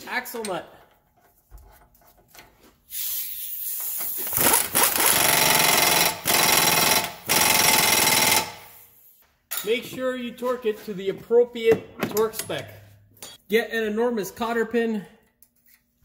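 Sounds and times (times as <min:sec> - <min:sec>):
pneumatic impact wrench: 0:02.9 - 0:09.1.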